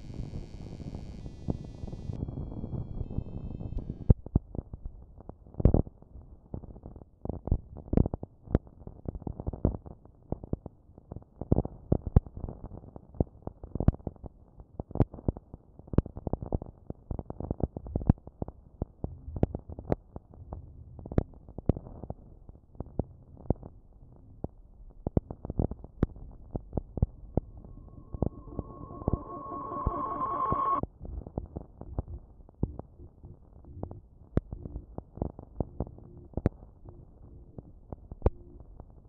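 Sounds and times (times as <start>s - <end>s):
electronic ambient crackle: 0.0s - 5.8s, 20.9s - 39.0s.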